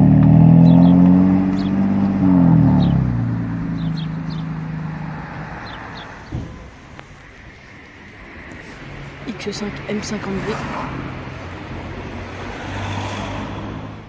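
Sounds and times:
car exhaust accelerating: 0.0 - 9.3
short thump: 6.2 - 6.8.

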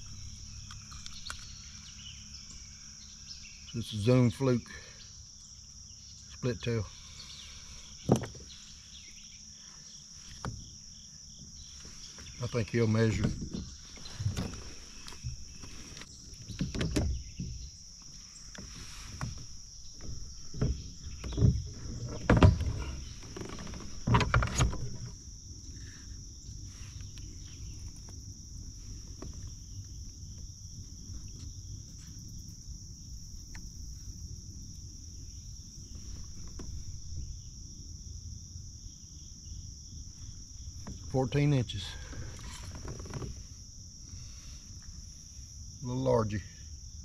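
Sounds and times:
high-pitched insect drone: 0.0 - 47.0
fish and gear knocking in kayak: 19.2 - 25.2.

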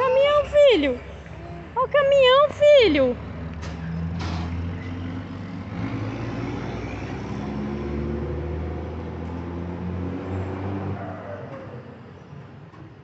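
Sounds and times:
truck engine passing: 2.8 - 12.1.

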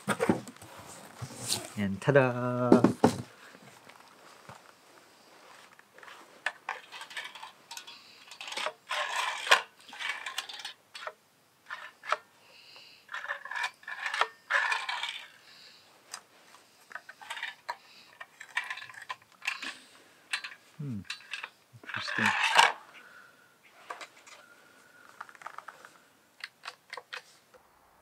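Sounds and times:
circular saw being handled: 6.0 - 12.3, 13.1 - 15.4, 16.9 - 22.8.

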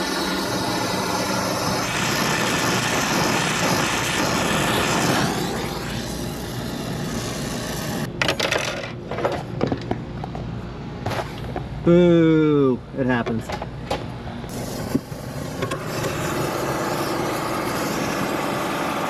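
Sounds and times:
torch flame rushing: 0.0 - 8.1, 14.5 - 19.0.

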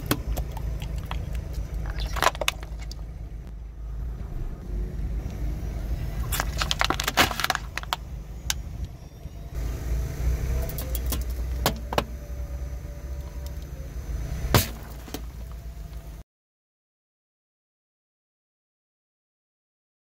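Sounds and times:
plastic crushing under tyre: 0.0 - 3.1, 6.2 - 8.6, 14.5 - 15.6
car low rumble: 0.0 - 16.2.

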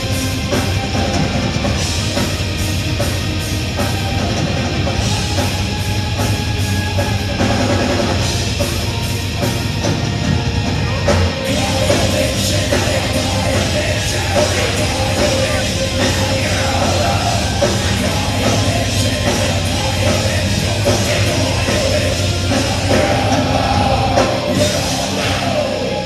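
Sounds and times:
bass: 0.0 - 26.0
distorted electric guitars: 0.0 - 26.0
drums: 0.0 - 26.0
singer shouting vocals: 10.8 - 26.0.

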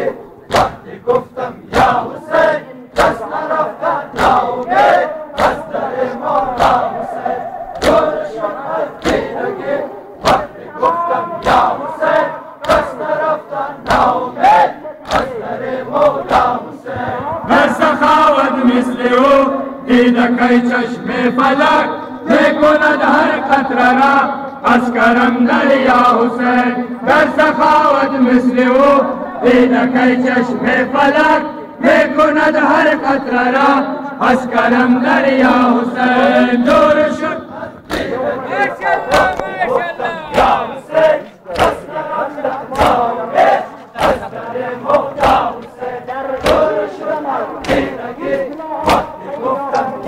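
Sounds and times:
men chanting a lament: 0.0 - 50.0
hands slapping bare chests: 0.5 - 2.0, 3.0 - 3.3, 4.1 - 4.8, 5.4 - 5.6, 6.6 - 6.8, 7.8 - 8.1, 9.0 - 9.3, 10.2 - 10.5, 11.4 - 11.7, 12.6 - 13.0, 13.8 - 14.1, 15.0 - 15.4, 37.8 - 38.2, 40.3 - 40.6, 41.5 - 41.8, 42.5 - 43.0, 44.0 - 44.3, 46.4 - 46.7, 47.6 - 49.2.

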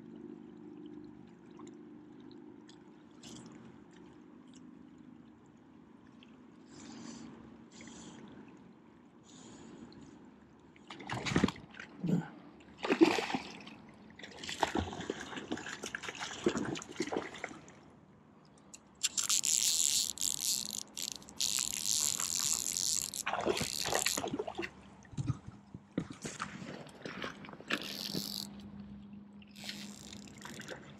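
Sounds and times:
water splashing: 12.8 - 17.8, 19.0 - 28.6, 29.5 - 30.9.

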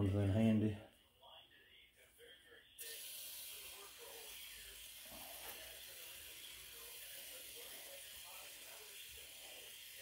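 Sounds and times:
aerosol can spraying: 2.8 - 10.0.

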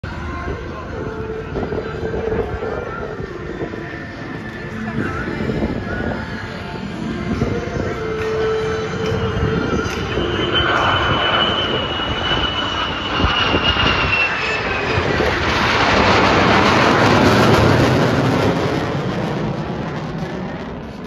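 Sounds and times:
jet engine whine: 0.0 - 21.0.

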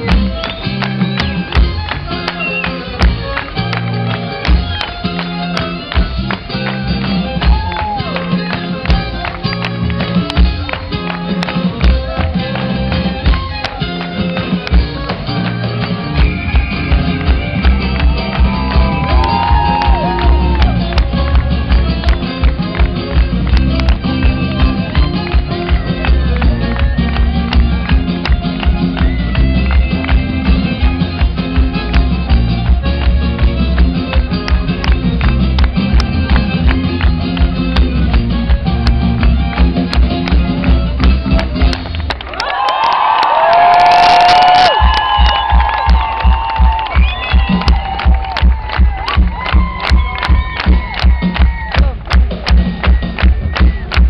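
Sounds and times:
electric bass guitar: 0.0 - 42.2
live band playing: 0.0 - 54.0.

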